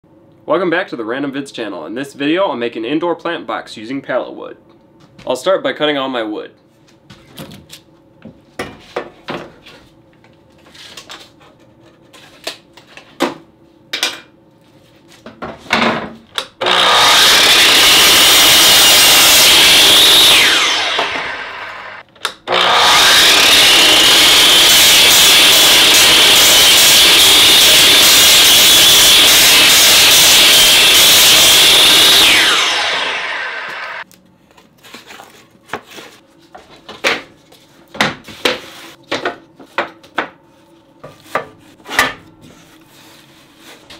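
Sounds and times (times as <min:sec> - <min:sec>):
miter saw cutting wood: 0:16.6 - 0:34.0.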